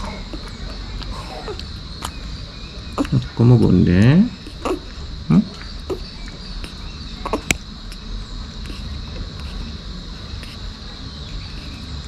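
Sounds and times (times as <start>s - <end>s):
high insect trill: 0.0s - 12.0s.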